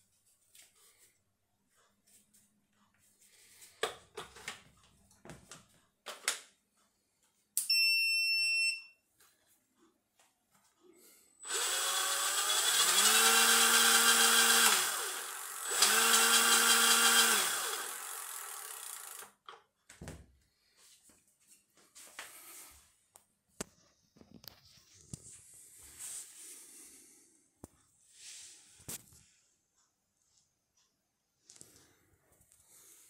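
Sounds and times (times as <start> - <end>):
short electronic beep: 7.6 - 9.0
electric motor whine: 11.4 - 19.3.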